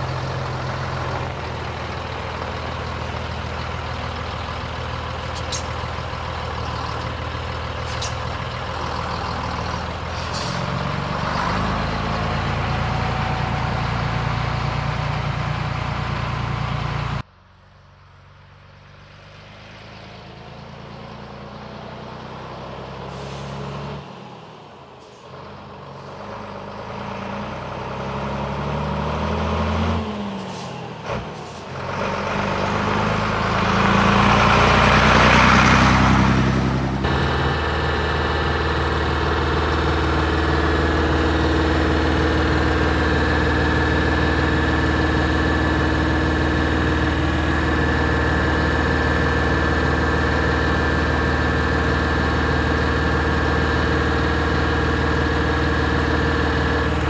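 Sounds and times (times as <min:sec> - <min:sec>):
truck engine idling: 0:00.0 - 0:17.7, 0:30.4 - 0:57.0
truck diesel engine accelerating: 0:00.0 - 0:57.0.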